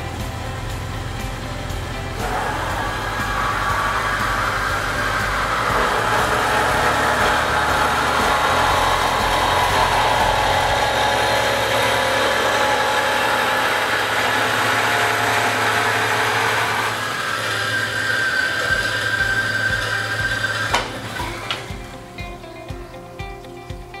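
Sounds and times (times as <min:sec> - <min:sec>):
band saw cutting metal tubing: 0:00.0 - 0:22.8
low motor hum: 0:00.0 - 0:24.0.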